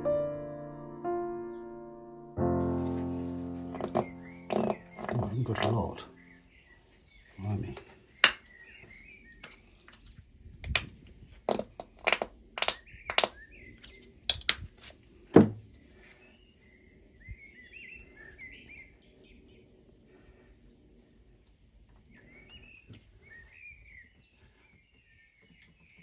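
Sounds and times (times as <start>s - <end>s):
small birds chirping: 3.2s - 26.0s
plastic paint tubes clicking: 10.6s - 14.8s.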